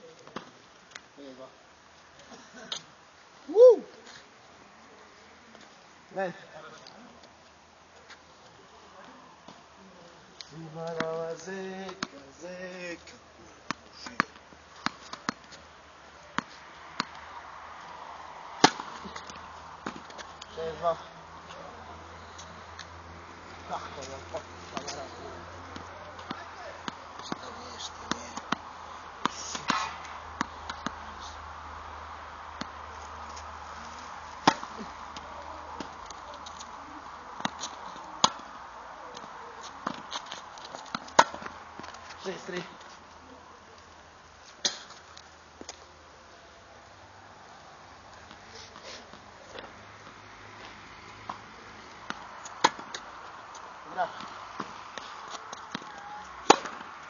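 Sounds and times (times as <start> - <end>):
ball bouncing: 16.4 - 17.2, 28.1 - 31.0, 32.6 - 33.4, 34.4 - 36.6, 39.2 - 42.0, 49.5 - 53.1
tennis ball struck by rackets: 18.6 - 20.4, 28.1 - 31.0, 34.4 - 36.7, 37.4 - 38.5, 39.2 - 41.9, 52.0 - 53.1, 54.1 - 56.9.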